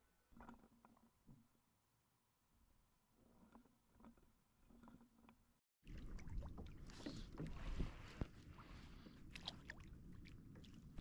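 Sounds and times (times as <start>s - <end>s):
water lapping against kayak hull: 5.8s - 11.0s.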